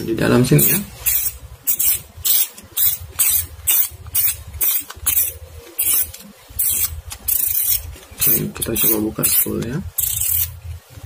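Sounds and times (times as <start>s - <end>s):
fishing reel scraping rustles: 0.6s - 10.6s.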